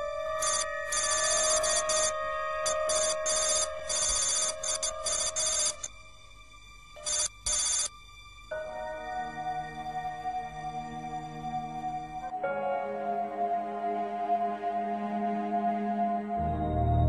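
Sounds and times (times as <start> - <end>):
rapid electronic trilling: 0.4 - 5.9
soft music chord: 2.1 - 2.7, 8.5 - 17.0.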